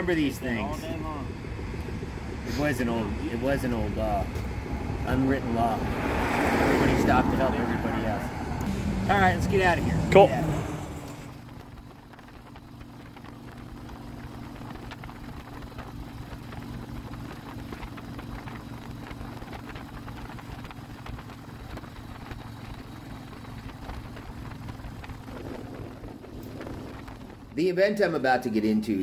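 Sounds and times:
motorcycle engine running: 0.0 - 27.8.

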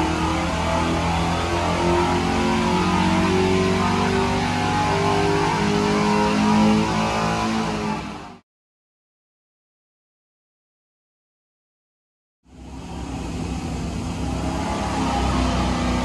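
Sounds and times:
engine revving at full throttle: 0.0 - 8.4, 12.5 - 16.0.

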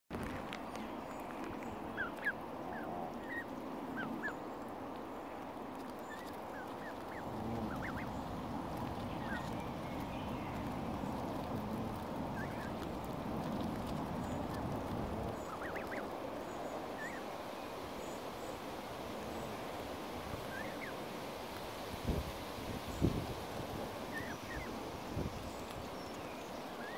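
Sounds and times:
goslings peeping: 2.0 - 4.4, 5.7 - 17.3, 20.3 - 21.0, 24.0 - 25.8.

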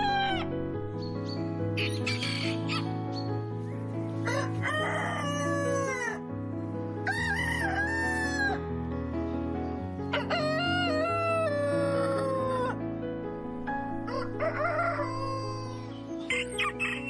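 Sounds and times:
background music: 0.0 - 17.0
rooster crowing: 4.2 - 6.2, 7.0 - 8.6, 10.1 - 12.7, 14.0 - 17.0.

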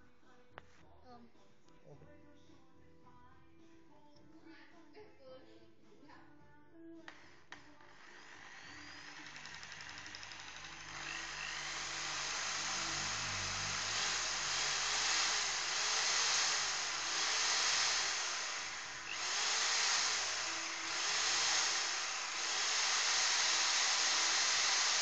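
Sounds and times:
power tool motor whirring: 7.1 - 25.0.

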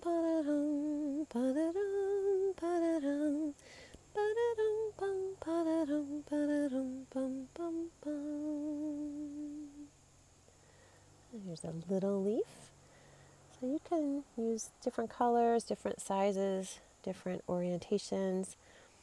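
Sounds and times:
woman singing wordless tune: 0.0 - 10.0, 11.3 - 18.8.

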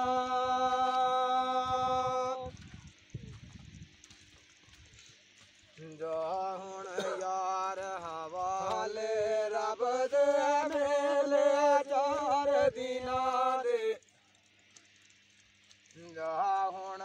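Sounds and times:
man singing unaccompanied: 0.0 - 2.6, 5.8 - 14.0, 16.0 - 17.0.

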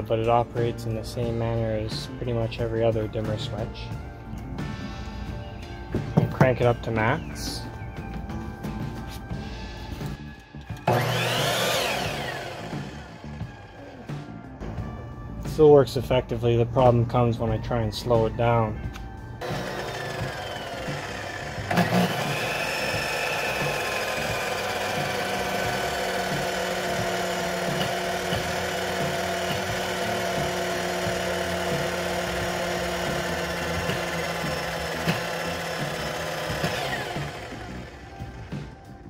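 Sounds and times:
electric saw motor whining: 9.3 - 14.4, 19.4 - 39.0.

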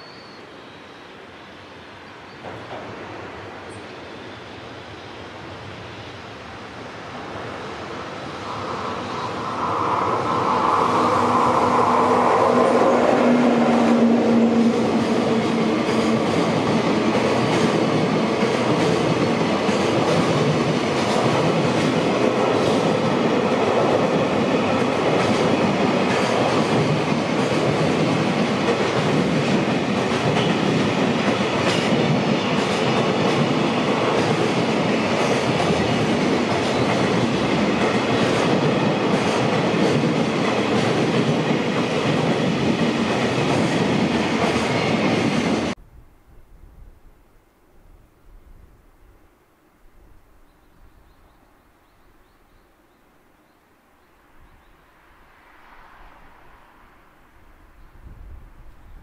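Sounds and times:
electric locomotive humming: 0.0 - 45.8
train wheels clattering on rails: 2.4 - 3.8, 14.6 - 45.8.

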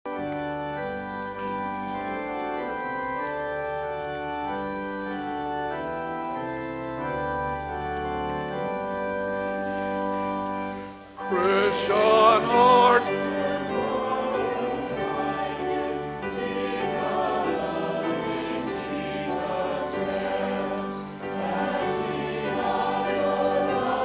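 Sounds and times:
church organ playing chords: 0.1 - 24.0
choir singing: 1.4 - 3.4, 11.2 - 24.0.

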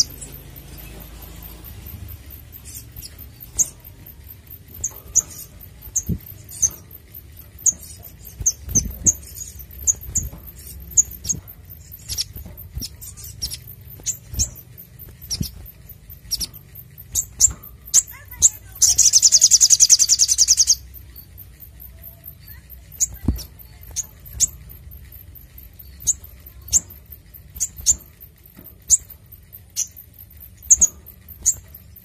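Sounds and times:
soft low thumps: 2.1 - 18.0, 23.0 - 29.1.

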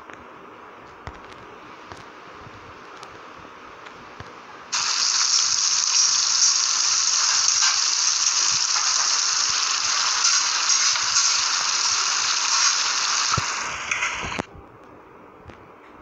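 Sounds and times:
food sizzling in a frying pan: 4.8 - 14.4.

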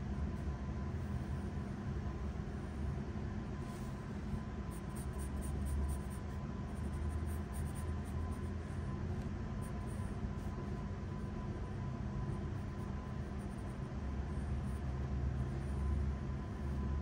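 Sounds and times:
low background hum: 0.0 - 17.0
pencil scratching on paper: 4.7 - 8.9.

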